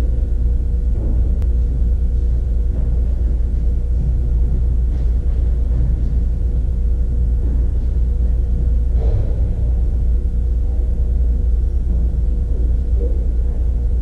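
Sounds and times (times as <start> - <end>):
faint hum: 0.0 - 14.0
low rumble: 0.0 - 14.0.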